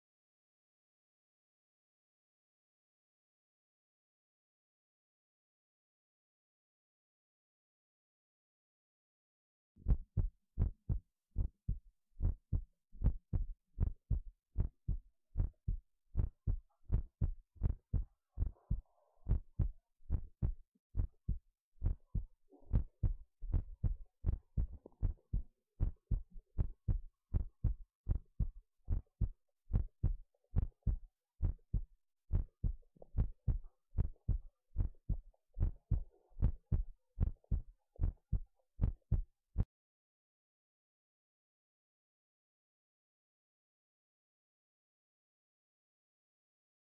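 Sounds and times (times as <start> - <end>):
heartbeat: 9.8 - 39.7.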